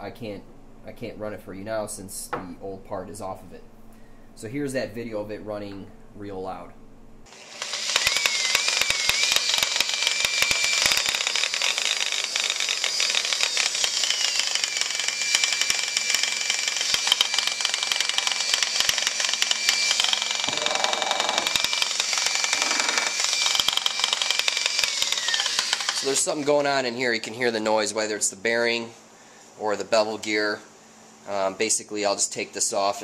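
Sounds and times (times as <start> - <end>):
electric polisher grinding: 7.3 - 26.4.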